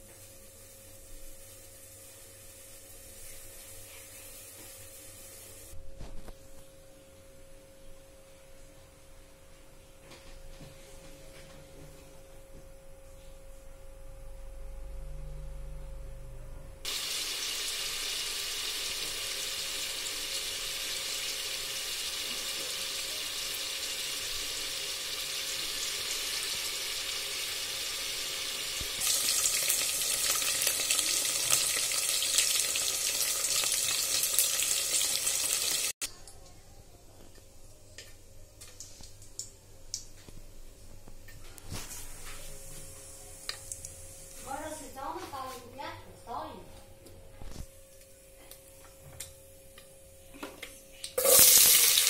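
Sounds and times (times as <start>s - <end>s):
cheese frying in hot oil: 0.0s - 5.8s, 16.9s - 36.5s, 51.0s - 52.0s
pot hissing on gas stove: 0.0s - 5.8s, 16.8s - 36.0s, 41.7s - 44.6s, 51.2s - 52.0s.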